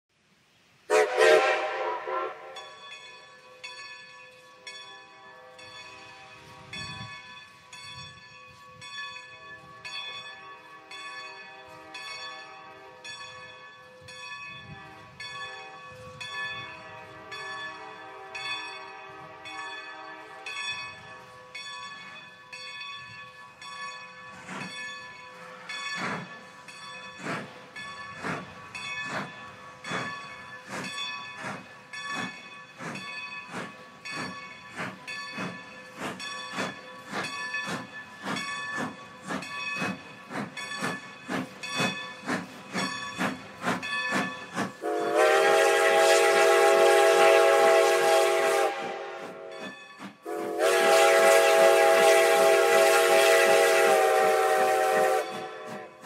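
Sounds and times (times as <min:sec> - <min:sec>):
steam locomotive whistle blast: 0:00.9 - 0:02.7, 0:44.8 - 0:56.0
locomotive bell ringing: 0:01.8 - 0:54.3
steam locomotive chuffing: 0:24.2 - 0:56.0.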